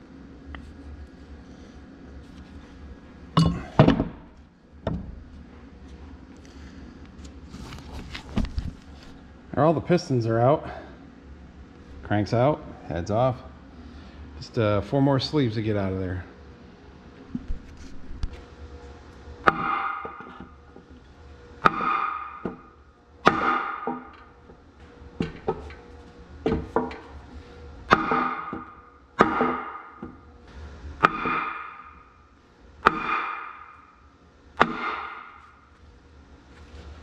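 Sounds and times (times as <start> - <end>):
hammer striking metal: 19.5 - 20.3, 21.6 - 22.6, 23.2 - 24.2, 27.9 - 30.1, 31.0 - 32.0, 32.8 - 33.9, 34.6 - 35.4.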